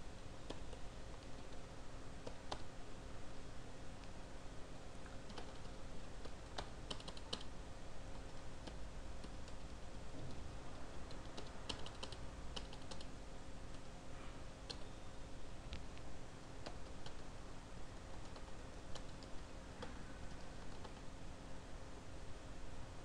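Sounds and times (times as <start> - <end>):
keyboard typing: 0.4 - 2.7, 5.0 - 10.4, 11.1 - 13.9, 14.6 - 14.9, 16.6 - 17.3, 18.0 - 21.1.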